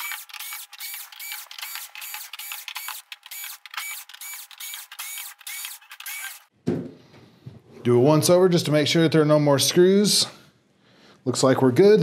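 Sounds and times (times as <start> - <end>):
drill driver whirring bursts: 0.0 - 6.5.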